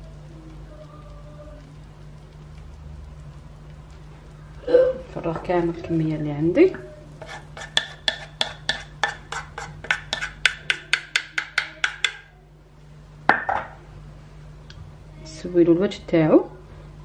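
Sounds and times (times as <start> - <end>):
utensil scraping metal saucepan: 6.7 - 12.3.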